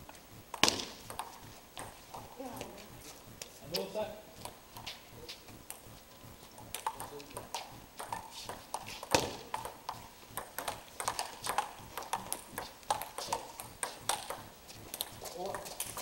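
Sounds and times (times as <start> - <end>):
table tennis ball clicking: 6.6 - 16.0.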